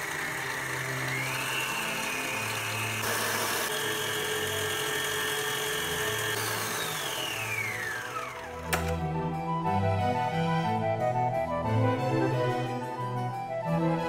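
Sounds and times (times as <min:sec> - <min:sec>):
kitchen appliance motor whirring: 0:00.0 - 0:09.1.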